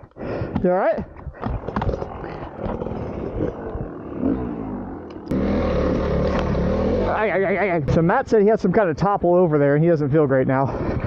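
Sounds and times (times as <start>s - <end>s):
dirt bike engines idling: 0.6s - 11.0s
motorcycle engine running: 1.9s - 8.1s
wind on microphone: 10.6s - 11.0s.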